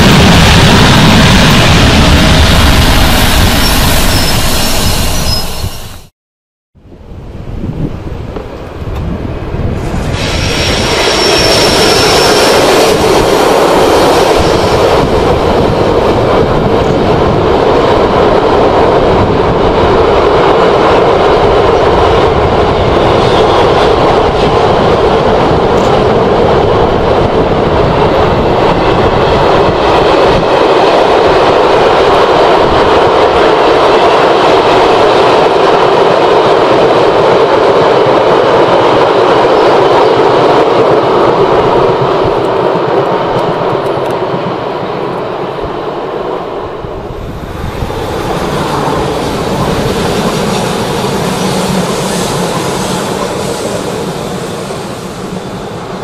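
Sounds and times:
freight train rumbling and rattling: 0:00.0 - 0:06.1, 0:07.2 - 0:56.0
high squeal: 0:02.6 - 0:06.1, 0:09.8 - 0:15.4, 0:47.2 - 0:56.0.

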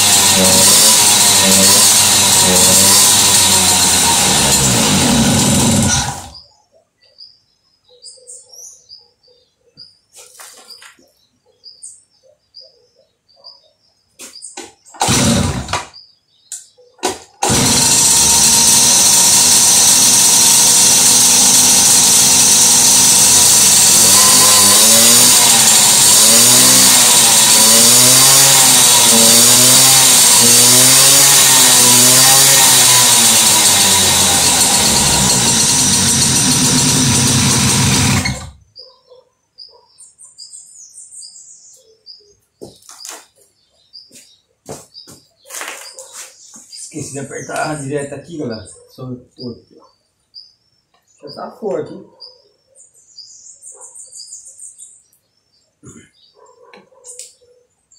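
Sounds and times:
engine starting bursts: 0:00.0 - 0:06.4, 0:15.0 - 0:15.9, 0:17.0 - 0:38.6
moped engine revving: 0:00.0 - 0:06.4, 0:15.0 - 0:15.9, 0:17.4 - 0:38.6
faint bird chirps: 0:06.4 - 0:15.0, 0:38.7 - 0:57.9.

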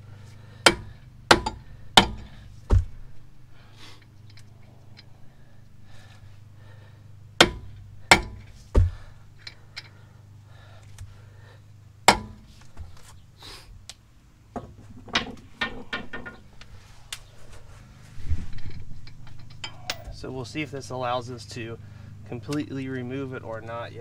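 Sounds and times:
hammer striking metal axle: 0:00.6 - 0:02.9, 0:07.4 - 0:09.9, 0:12.1 - 0:12.5, 0:19.3 - 0:20.2
light knocks and clatter: 0:08.2 - 0:09.9.

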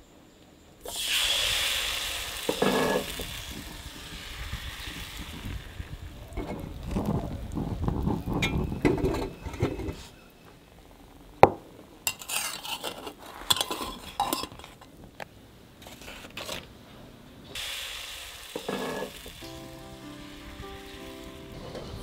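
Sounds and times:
steady hiss: 0:00.0 - 0:09.2, 0:17.0 - 0:22.0
utensil scraping a pan: 0:02.5 - 0:03.2, 0:12.1 - 0:14.8, 0:18.6 - 0:19.3.

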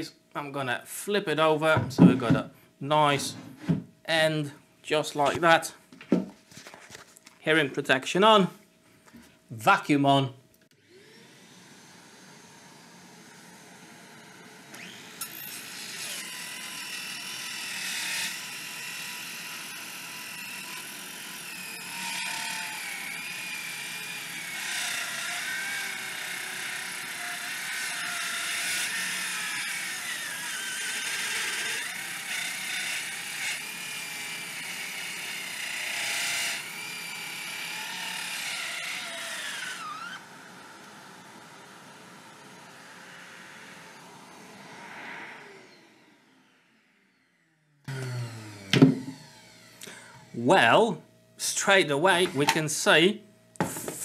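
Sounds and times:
dust extraction vacuum: 0:10.8 - 0:16.7, 0:47.9 - 0:50.6, 0:51.4 - 0:53.0
circular saw cutting timber: 0:10.8 - 0:53.0.

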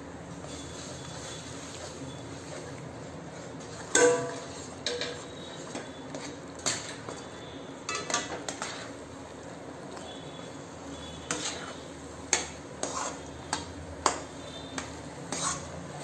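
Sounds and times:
metal spatula scraping a pot: 0:03.6 - 0:09.0, 0:10.9 - 0:15.9.

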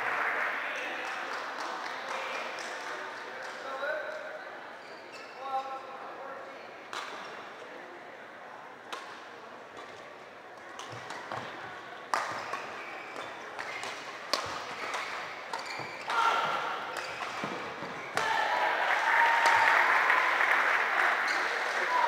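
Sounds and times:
spectators' voices: 0:00.0 - 0:22.0
rackets hitting shuttlecock: 0:12.1 - 0:18.4.

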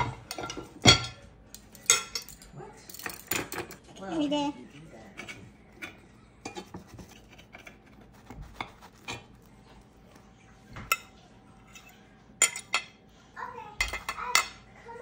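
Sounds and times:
utensils clinking on ceramic plate: 0:00.0 - 0:03.9, 0:05.1 - 0:09.5, 0:10.7 - 0:13.0, 0:13.8 - 0:14.7
fork scraping a cast iron skillet: 0:05.1 - 0:09.8, 0:10.9 - 0:12.8.

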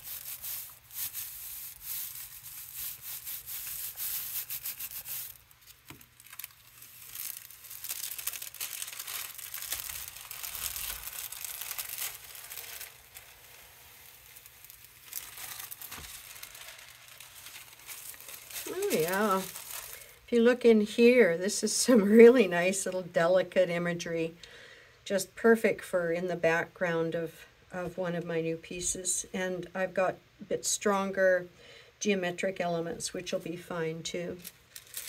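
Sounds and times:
tissue paper crinkling: 0:00.0 - 0:20.2, 0:34.4 - 0:35.0
tissue paper rubbing rustle: 0:00.0 - 0:20.2, 0:34.4 - 0:35.0.

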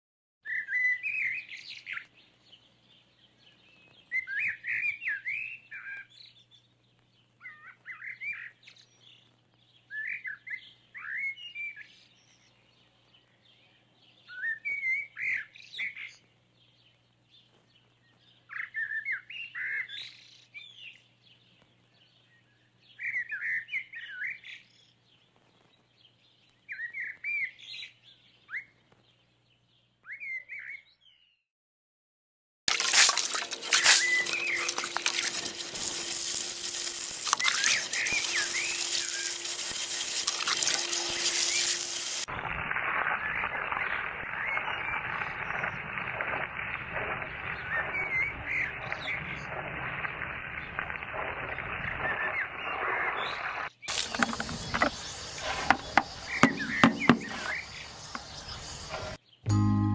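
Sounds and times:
songbird warbling: 0:33.7 - 0:42.2, 0:52.3 - 0:59.2.

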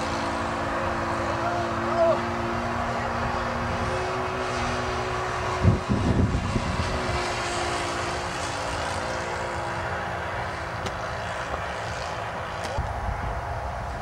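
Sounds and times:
model plane engine droning: 0:00.0 - 0:14.0.

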